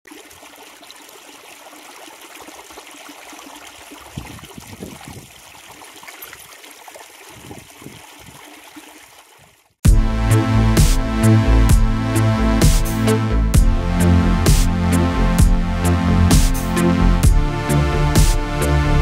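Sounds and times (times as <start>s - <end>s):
wind buffeting microphone: 4.0s - 5.4s, 7.3s - 8.4s.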